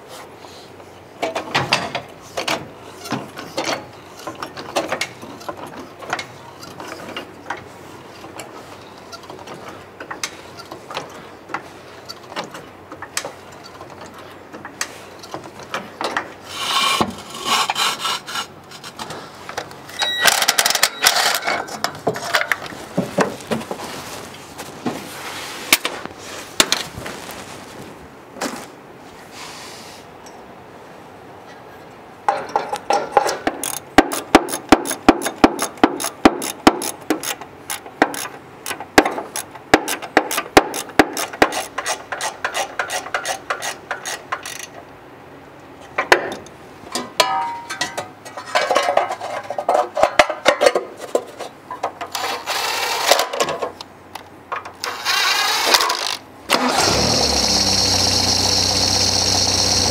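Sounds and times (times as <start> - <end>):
rattling and scraping: 20.4 - 28.7, 47.0 - 53.8.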